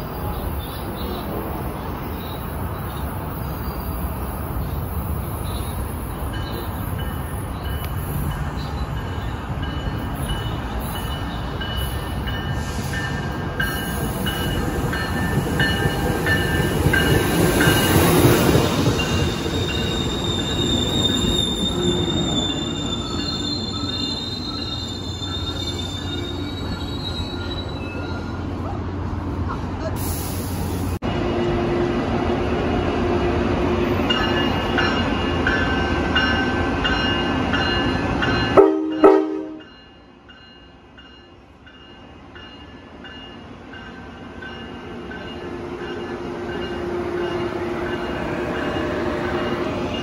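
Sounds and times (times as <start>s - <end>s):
train rumbling past: 0.0s - 50.0s
train wheels squealing: 2.1s - 28.8s.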